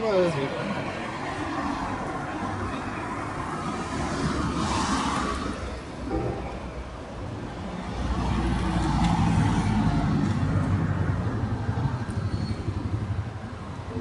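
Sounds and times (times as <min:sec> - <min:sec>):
vehicle engine humming: 0:05.2 - 0:14.0.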